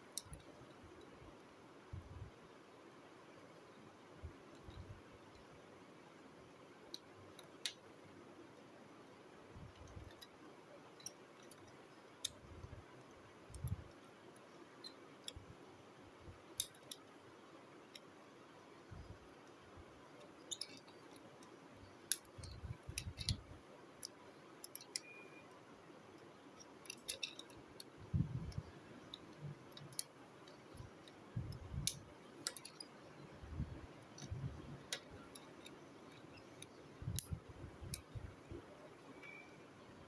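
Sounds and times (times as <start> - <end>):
plastic toy parts clicking: 0.1 - 0.5, 6.9 - 7.8, 11.0 - 12.7, 13.5 - 15.4, 16.5 - 17.1, 20.2 - 23.4, 24.0 - 25.2, 26.6 - 33.2, 34.1 - 38.3.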